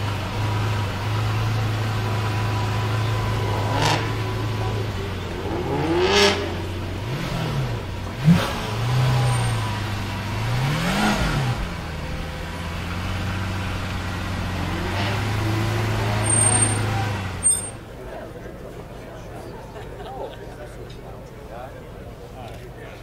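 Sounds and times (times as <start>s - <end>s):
car engine revving: 0.0s - 17.9s.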